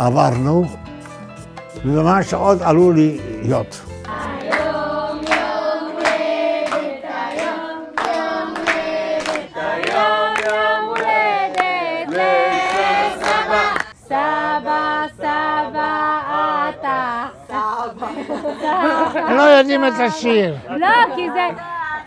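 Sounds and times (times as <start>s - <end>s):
people singing a celebration song: 3.5s - 22.0s
people clapping in time: 4.0s - 14.0s.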